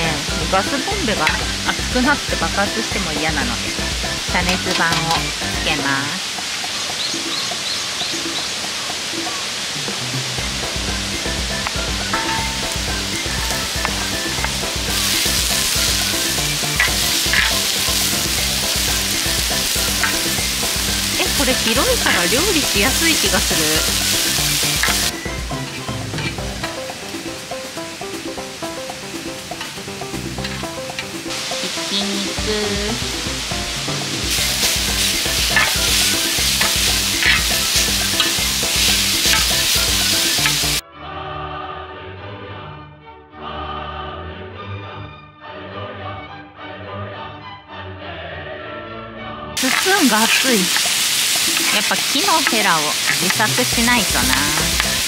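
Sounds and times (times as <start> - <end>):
onion sizzling on hot pan: 0.0 - 40.8, 49.6 - 55.0
music: 0.0 - 55.0
metal spatula scraping pan: 12.1 - 25.1, 34.4 - 40.6.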